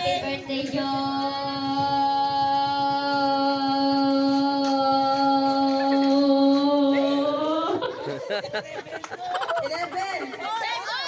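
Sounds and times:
girl singing a long note: 0.0 - 7.7.

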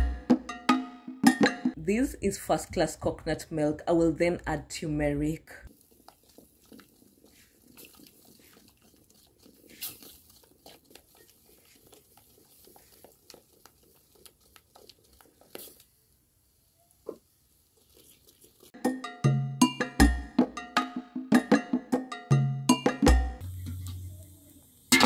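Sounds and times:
wooden spoon scraping a pot: 5.7 - 16.0, 17.0 - 18.8.

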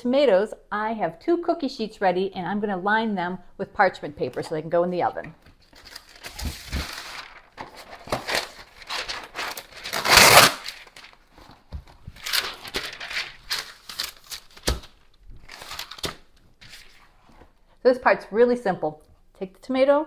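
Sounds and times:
parchment paper rustling: 5.4 - 17.5
paper crinkling: 5.5 - 17.4
paper tearing on cutting edge: 8.1 - 10.8.

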